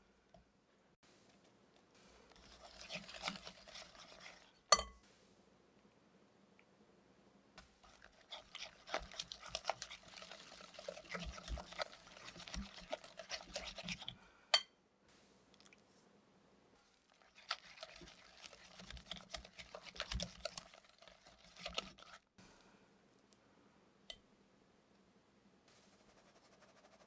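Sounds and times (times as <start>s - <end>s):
whisk beating in glass bowl: 2.3s - 4.9s, 7.8s - 14.1s, 17.2s - 22.2s
whisk clinking on bowl: 2.4s - 5.0s.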